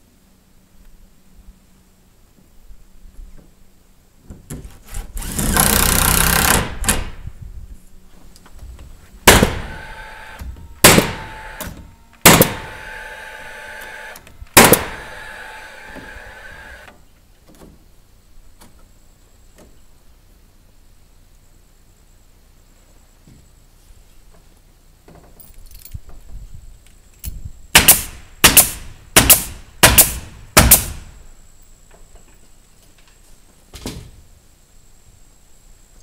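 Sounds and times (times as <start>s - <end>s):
nail gun firing into wood: 4.6s - 7.2s, 9.3s - 16.9s, 27.7s - 31.2s.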